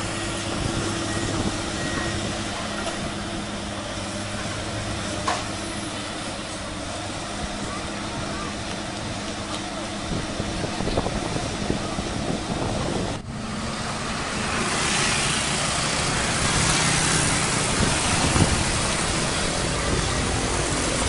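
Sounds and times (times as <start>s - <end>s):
excavator diesel engine running: 0.0s - 21.0s
track and road hiss: 0.0s - 21.0s.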